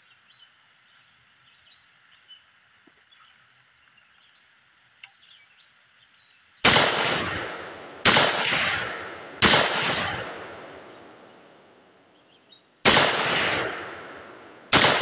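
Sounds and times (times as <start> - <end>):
rifle shots echoing: 6.6 - 11.8, 12.8 - 15.0.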